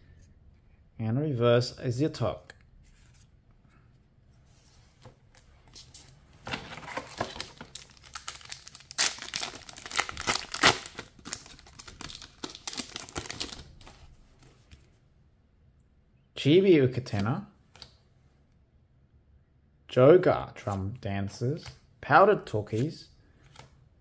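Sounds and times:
foil wrapper crinkling and tearing: 7.1s - 14.0s.

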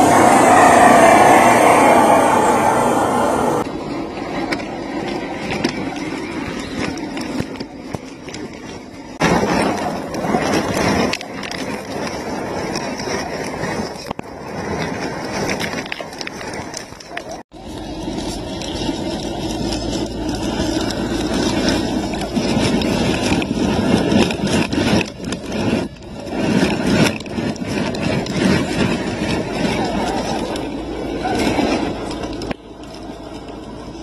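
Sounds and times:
wheels over loose rocks: 3.6s - 34.0s.

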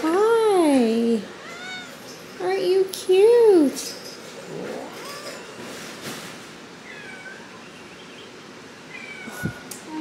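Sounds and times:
cat meowing faintly: 8.9s - 9.6s.

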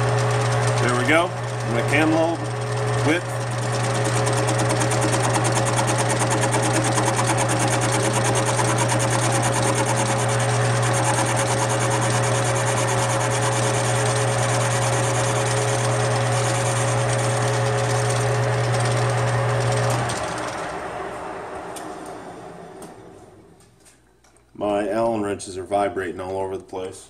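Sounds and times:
rattling buzz of vibrating parts: 0.0s - 20.6s
lathe motor hum: 0.0s - 23.1s.

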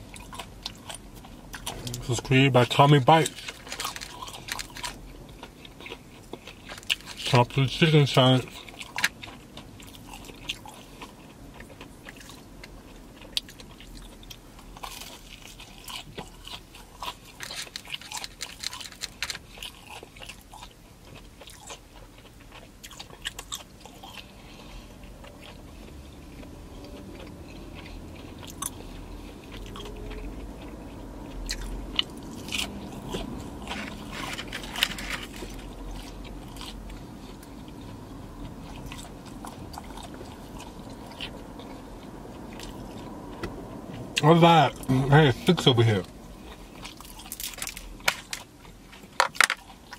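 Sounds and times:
chewing: 0.0s - 49.9s
crunching bites: 3.2s - 7.3s, 8.4s - 24.3s, 31.3s - 38.0s.

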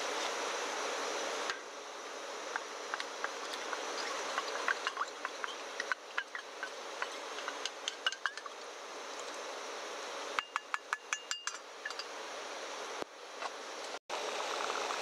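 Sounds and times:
food simmering with pops: 2.5s - 8.7s
metal cup clinking: 10.4s - 12.1s.

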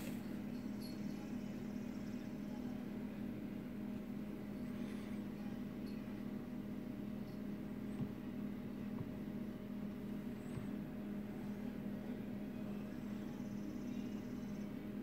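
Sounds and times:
faint knocks: 7.8s - 10.9s.

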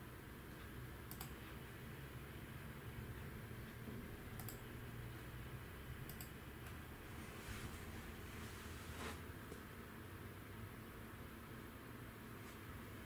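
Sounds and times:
faint steady low hum: 0.0s - 13.0s
computer mouse clicks: 0.6s - 1.5s, 4.3s - 4.7s, 6.0s - 6.8s.

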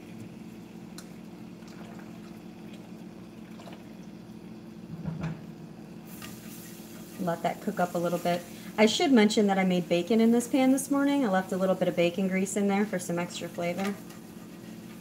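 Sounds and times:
water bubbling in a pot: 0.0s - 9.7s.

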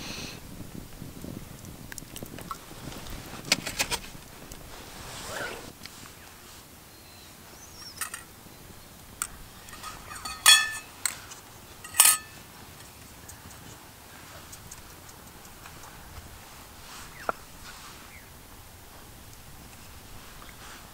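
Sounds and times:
metal utensils clinking on cookware: 7.8s - 8.3s, 9.6s - 11.2s, 11.8s - 12.9s.

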